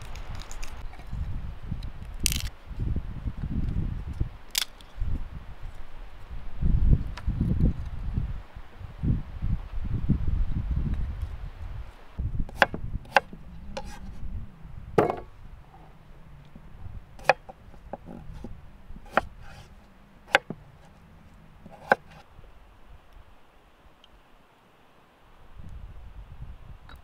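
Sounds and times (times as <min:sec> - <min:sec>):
low rumble: 0:06.4 - 0:23.0.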